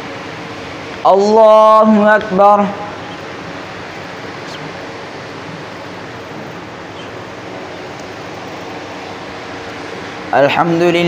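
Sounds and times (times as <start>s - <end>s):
room noise hiss: 0.0s - 11.0s.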